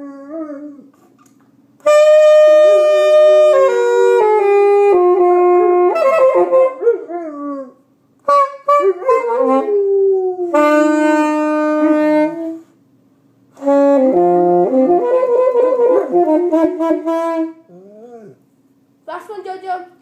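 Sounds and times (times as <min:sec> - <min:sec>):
saxophone playing held notes: 0:01.8 - 0:06.9, 0:08.2 - 0:09.8, 0:10.4 - 0:12.7, 0:13.6 - 0:17.6
dog howling: 0:08.8 - 0:10.6, 0:17.7 - 0:18.4.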